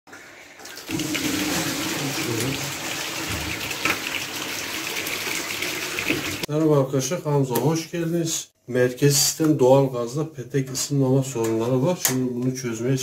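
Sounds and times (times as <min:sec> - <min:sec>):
water pouring into plastic bucket: 0:00.6 - 0:06.5.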